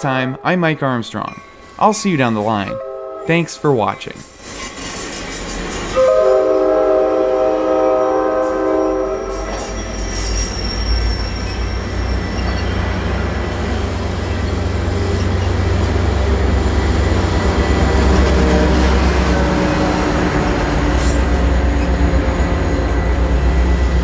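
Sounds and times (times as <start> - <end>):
diesel locomotive engine rumble: 2.4 - 24.0
train horn chord: 2.7 - 3.7, 5.9 - 9.8, 17.3 - 24.0.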